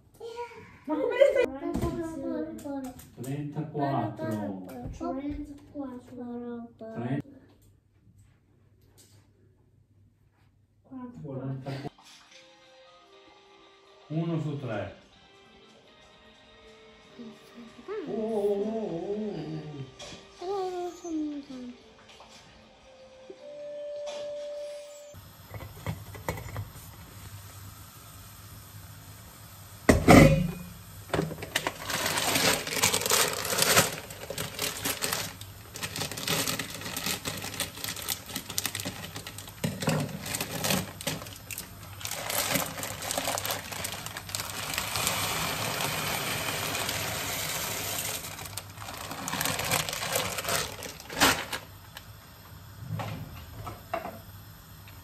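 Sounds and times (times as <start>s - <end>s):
pasta pouring into pot: 31.0s - 51.8s
dry pasta rattling in plastic bag: 31.4s - 51.7s.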